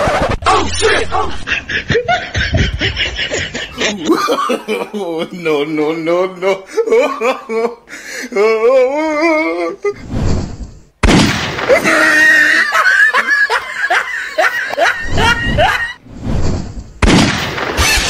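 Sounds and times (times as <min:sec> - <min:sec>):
men yelling and screaming: 0:11.7 - 0:13.2.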